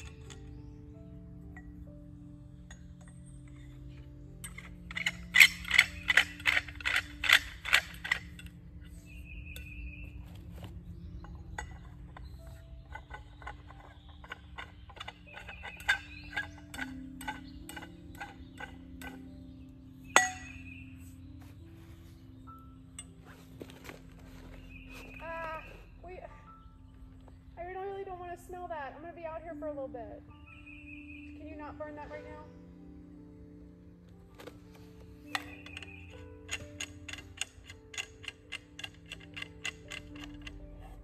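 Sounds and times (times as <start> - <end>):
metal tubes clinking: 0.0 - 0.6, 2.6 - 19.4, 20.1 - 20.7, 34.4 - 41.0.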